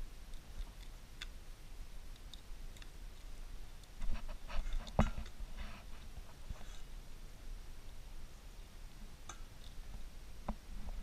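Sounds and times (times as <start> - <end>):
crab shell crackling and snapping: 0.2 - 1.4, 2.0 - 5.4.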